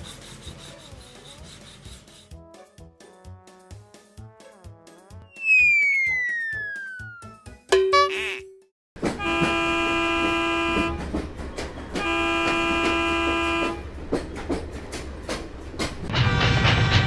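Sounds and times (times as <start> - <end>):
locomotive horn toots: 9.0 - 11.2, 11.9 - 13.9
cartoon locomotive engine rumble: 9.0 - 17.0.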